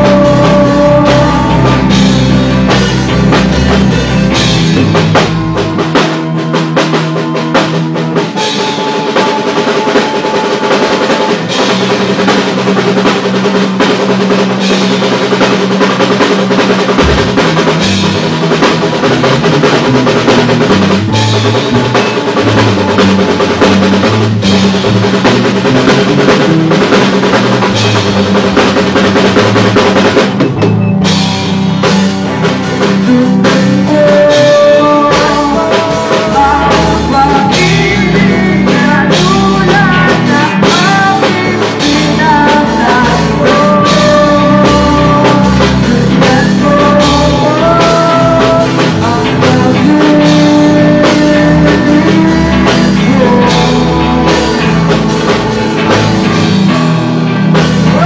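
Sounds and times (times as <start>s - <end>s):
person singing: 0.0s - 5.8s, 32.7s - 56.2s, 57.7s - 58.0s
live rock band playing: 0.0s - 58.0s.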